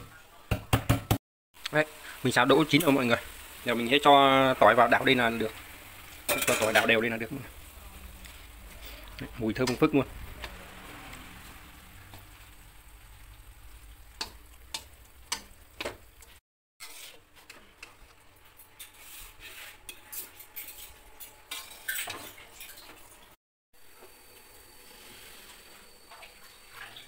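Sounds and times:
food sizzling in a wok: 0:01.6 - 0:22.4, 0:23.8 - 0:27.0
metal spatula against pan: 0:06.1 - 0:07.0, 0:14.1 - 0:22.3.

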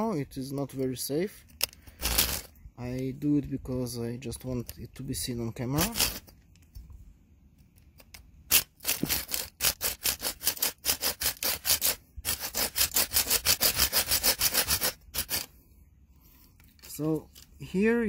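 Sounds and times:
saw cutting wooden stick: 0:05.8 - 0:06.3, 0:08.5 - 0:15.5.

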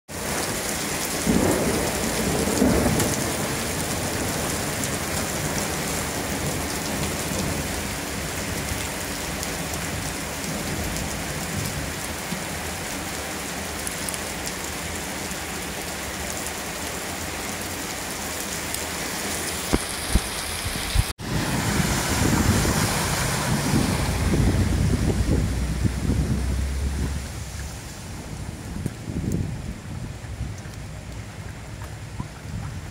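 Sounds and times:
floodwater rushing: 0:00.1 - 0:32.9
heavy rain on pavement: 0:00.1 - 0:32.9
wind buffeting microphone: 0:19.7 - 0:32.9
low rumbles: 0:20.1 - 0:32.9.

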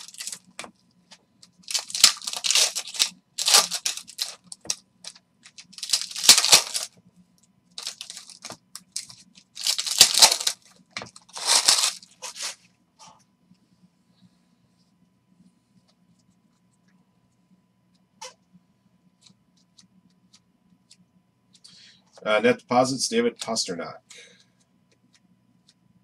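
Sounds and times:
wrappers tearing and crinkling: 0:00.0 - 0:00.5, 0:01.6 - 0:06.9, 0:07.8 - 0:12.6.

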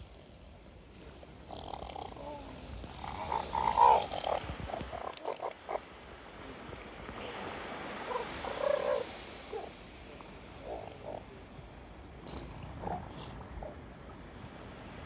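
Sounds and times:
seal grunts: 0:01.2 - 0:05.9, 0:07.2 - 0:09.8, 0:10.4 - 0:11.4, 0:12.2 - 0:13.9
elephant seal calls: 0:01.4 - 0:05.9, 0:08.0 - 0:09.8, 0:10.5 - 0:11.4.

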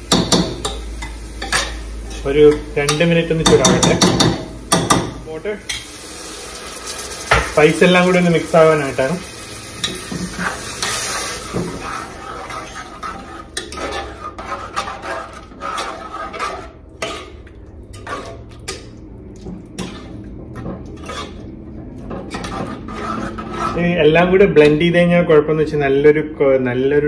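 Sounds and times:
metal spoon scraping a pot: 0:09.8 - 0:18.9, 0:19.8 - 0:24.0.

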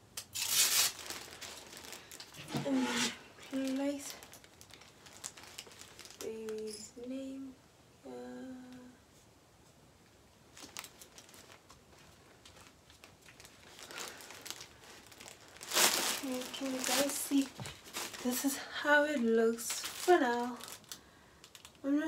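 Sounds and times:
woman humming: 0:06.3 - 0:09.0
paper sticker backing crinkling: 0:10.6 - 0:21.8.

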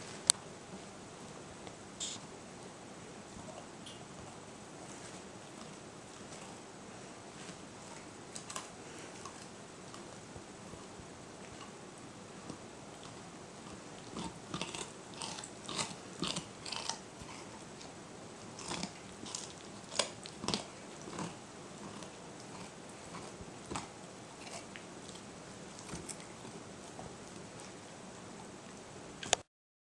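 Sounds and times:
dog crunching a carrot: 0:03.4 - 0:10.2, 0:12.4 - 0:27.9.

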